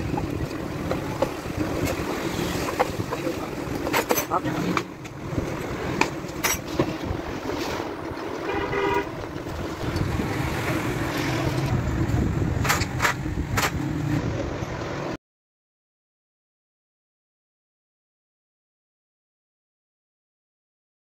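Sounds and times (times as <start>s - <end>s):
steady low rumble: 0.0s - 15.0s
horn toot: 8.4s - 9.2s.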